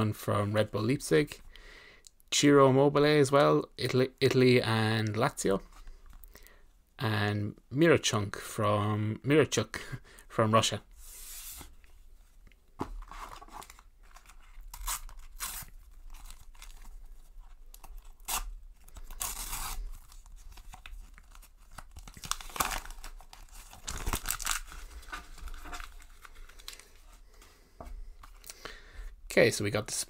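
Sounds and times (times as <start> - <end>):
wrapper crinkling: 13.3 - 27.2
packet tearing open: 13.6 - 17.0, 17.7 - 27.0.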